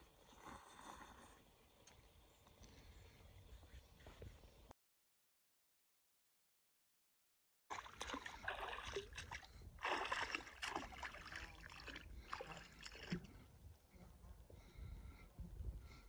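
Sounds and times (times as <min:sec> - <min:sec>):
water splashing and lapping: 0:07.7 - 0:13.5.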